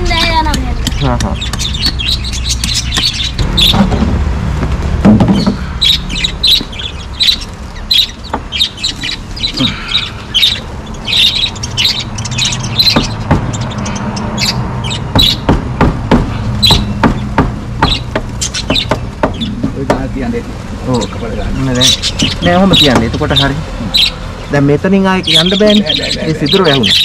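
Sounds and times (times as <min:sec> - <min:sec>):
lovebirds chirping: 0:00.0 - 0:04.2, 0:04.8 - 0:27.0
knife tapping wooden pegs: 0:00.5 - 0:02.0, 0:02.6 - 0:03.2.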